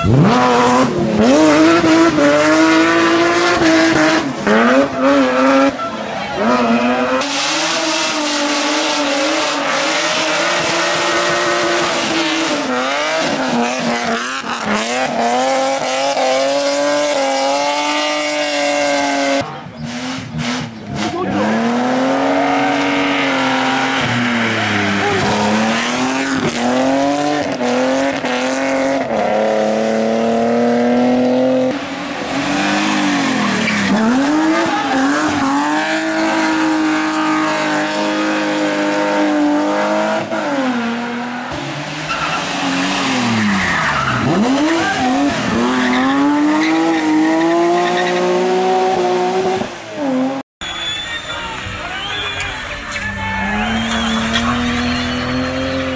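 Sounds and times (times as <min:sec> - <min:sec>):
rally car engines revving: 0:00.0 - 0:51.0, 0:51.6 - 0:55.9
tyres squealing: 0:42.0 - 0:48.5.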